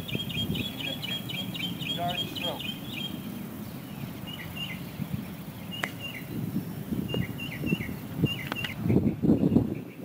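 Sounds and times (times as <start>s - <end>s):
birds chirping: 0.0s - 10.0s
sharp click: 8.4s - 8.8s.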